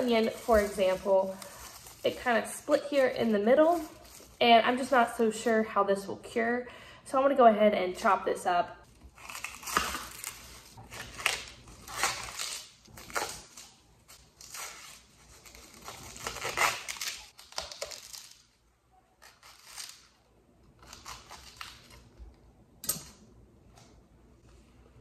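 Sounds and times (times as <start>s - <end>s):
onion skins crackling and rustling: 0.0s - 5.5s, 8.8s - 18.6s.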